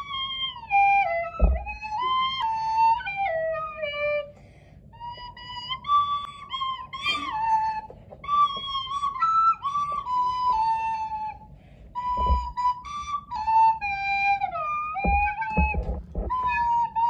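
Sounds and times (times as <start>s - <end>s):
recorder held notes: 0.0s - 11.4s, 12.0s - 17.0s
low thumps: 1.1s - 2.1s, 12.0s - 12.7s, 15.0s - 16.9s.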